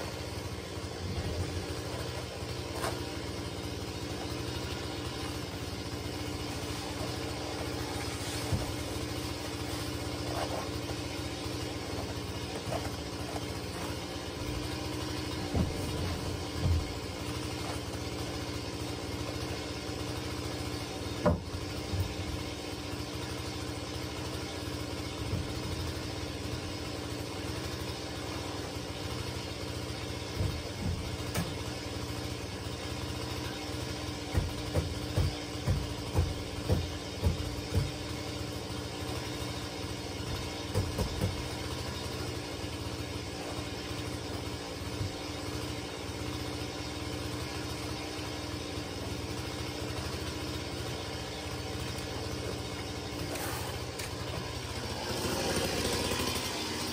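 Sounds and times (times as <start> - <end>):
motor-like hum: 0.0 - 56.9
wooden planks knocking: 15.4 - 17.8, 30.2 - 31.7, 34.2 - 38.1, 40.3 - 41.5.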